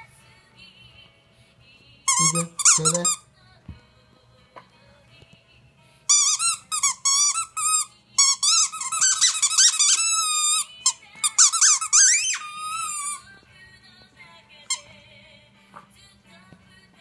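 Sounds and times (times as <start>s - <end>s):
squeaky toy squeaking: 2.1s - 3.2s, 6.1s - 13.2s.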